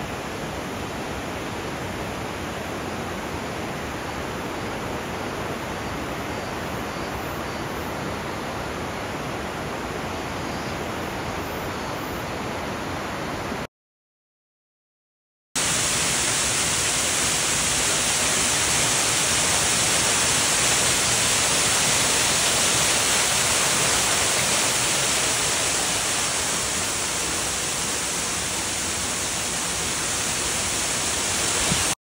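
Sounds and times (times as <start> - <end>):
waterfall rushing: 15.6 - 32.0.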